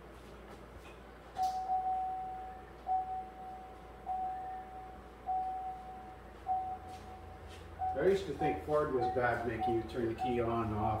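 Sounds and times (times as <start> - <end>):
dashboard warning chime: 1.4 - 11.0.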